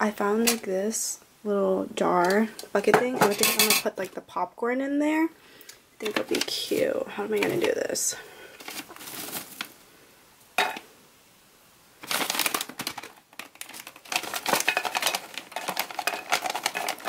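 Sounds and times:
popcorn bag rustling: 8.6s - 9.8s, 12.0s - 17.0s
popcorn tumbling into tin pail: 12.0s - 17.0s.

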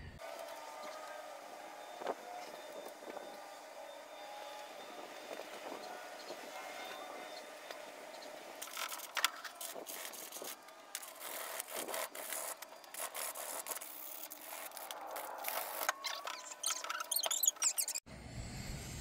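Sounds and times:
cloth scrubbing steering wheel: 8.7s - 17.1s.

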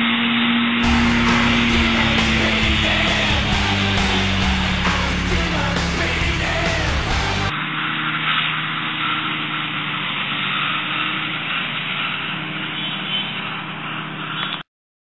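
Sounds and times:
tractor engine running: 0.8s - 7.5s.

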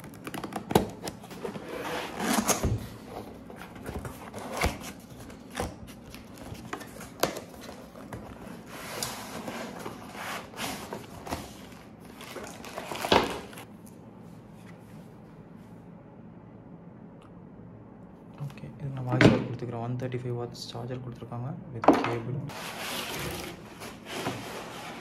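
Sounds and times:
cardboard scraping and rustling: 0.0s - 13.7s, 22.5s - 25.0s.

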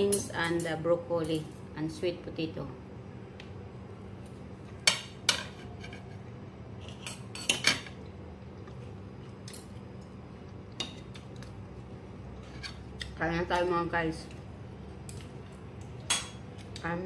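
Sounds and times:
cutlery clinking on a plate: 6.8s - 8.0s.

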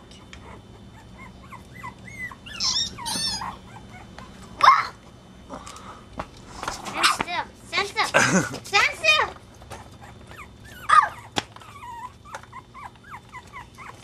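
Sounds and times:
puppies yipping and whimpering: 0.2s - 5.0s, 9.6s - 14.0s
puppy sharp yelp: 1.2s - 4.0s, 10.4s - 11.8s.

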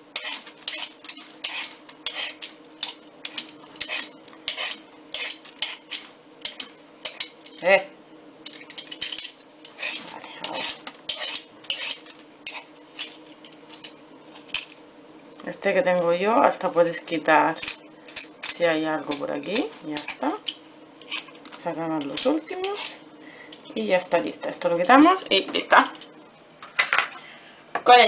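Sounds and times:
peeler scraping vegetable skin: 0.1s - 7.6s, 8.5s - 14.8s, 17.6s - 23.0s.

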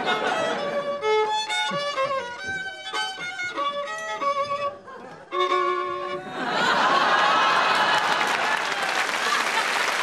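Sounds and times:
violin melody: 0.0s - 6.7s.

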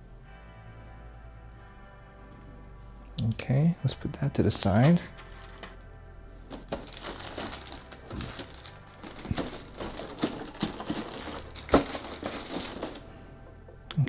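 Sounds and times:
packaging crinkling: 6.5s - 13.1s.

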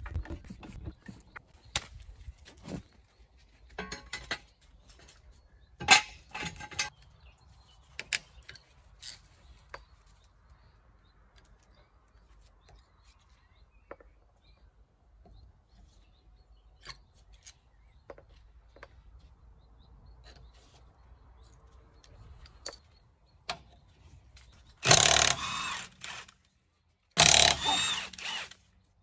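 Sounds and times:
metal clanks and knocks: 3.8s - 4.6s.

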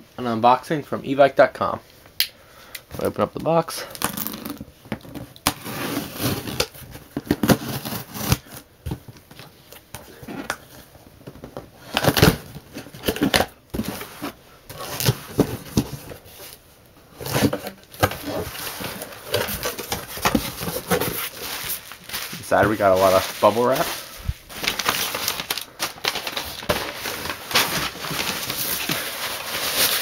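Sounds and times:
cardboard flaps scraping and rustling: 11.8s - 30.0s.

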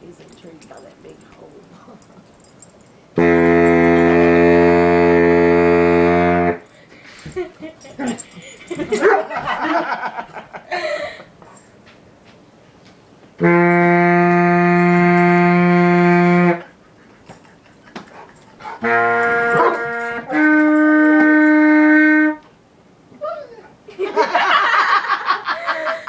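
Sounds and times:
baritone saxophone low notes: 3.2s - 6.7s, 13.4s - 16.8s, 18.7s - 22.5s.

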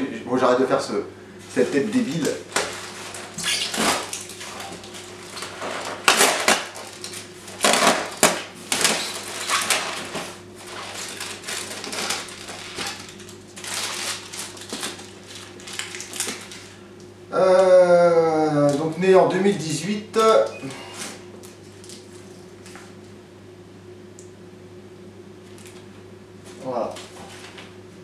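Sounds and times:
rustling and crunching packing: 1.5s - 16.8s.

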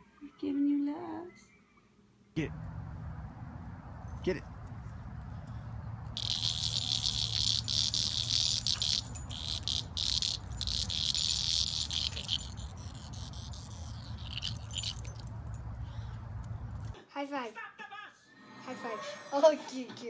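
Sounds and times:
low steady rumble: 2.4s - 17.0s
high-pitched insect chirring: 6.2s - 15.6s.

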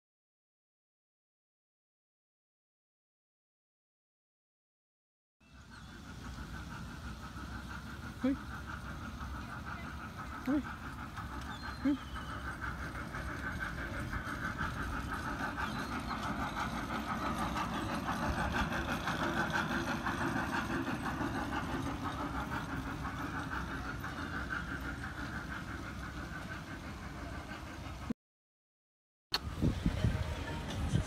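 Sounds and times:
park train motor drone: 5.4s - 28.1s, 29.3s - 31.0s.

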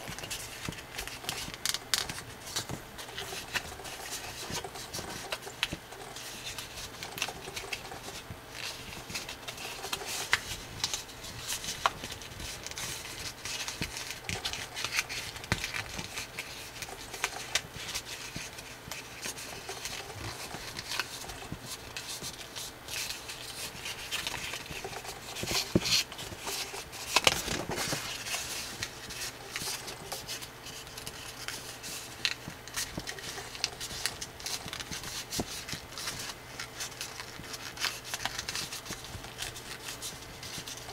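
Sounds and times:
paper rustling and crinkling: 0.0s - 40.9s
small paper clicks: 0.0s - 40.9s.

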